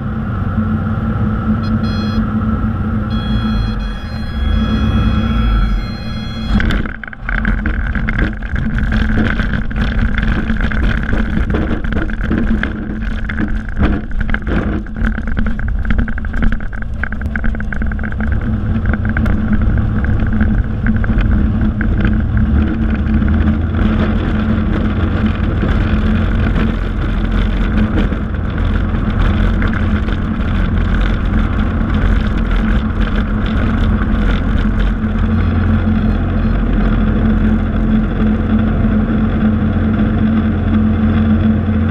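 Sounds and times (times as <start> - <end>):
airplane engine and propeller: 0.0 - 41.9
airframe rattles and knocks: 6.3 - 38.9.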